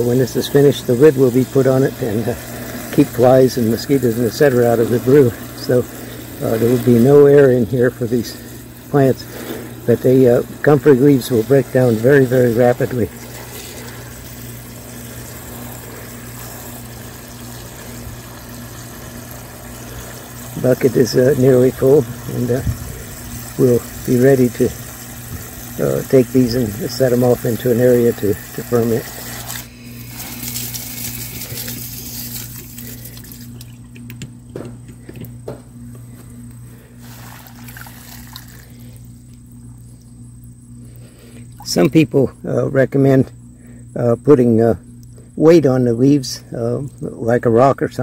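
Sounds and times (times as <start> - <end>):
hose water running into bucket: 0.0 - 34.2, 36.5 - 40.1, 41.5 - 42.1
constant low hum: 0.0 - 48.0.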